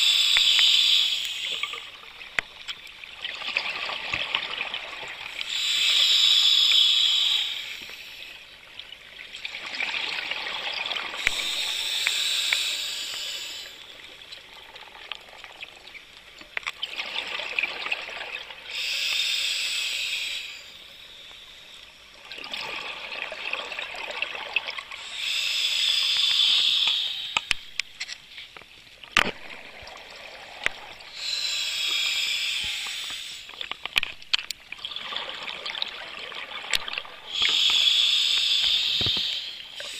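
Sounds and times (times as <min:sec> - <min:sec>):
bubbly hiss of exhaled air: 0:00.0 - 0:02.2, 0:03.7 - 0:08.4, 0:09.8 - 0:14.1, 0:17.0 - 0:21.7, 0:22.4 - 0:27.8, 0:29.5 - 0:33.8, 0:36.9 - 0:39.9
quiet hiss of inhaling: 0:00.0 - 0:02.3, 0:05.2 - 0:08.7, 0:11.2 - 0:14.2, 0:18.6 - 0:22.2, 0:24.8 - 0:28.5, 0:30.6 - 0:34.1, 0:37.2 - 0:39.9.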